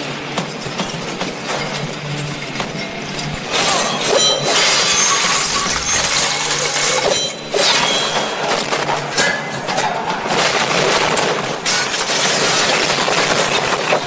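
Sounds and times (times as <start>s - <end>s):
chariot crashing and breaking apart: 3.5s - 14.0s
debris smashing and splintering: 3.5s - 14.0s.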